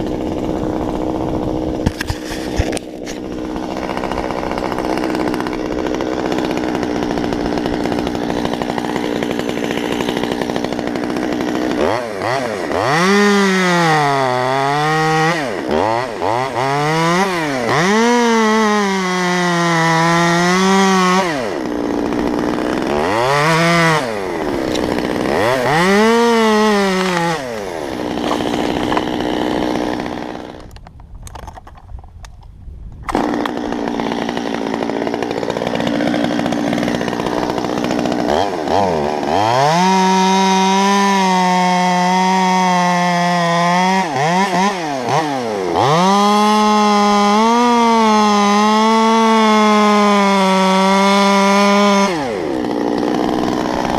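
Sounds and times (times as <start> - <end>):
chainsaw idling and revving: 0.0 - 30.9, 33.1 - 53.9.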